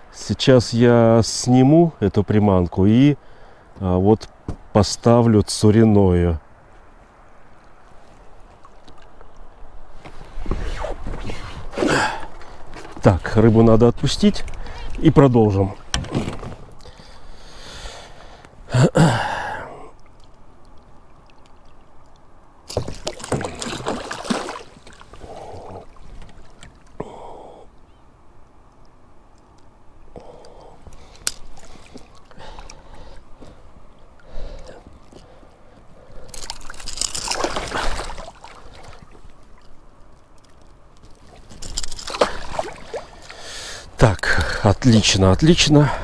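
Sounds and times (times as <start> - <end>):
water splashing and sloshing: 6.6 - 17.4, 19.8 - 27.6, 30.3 - 46.0
man sighing: 18.7 - 20.0, 27.0 - 27.7.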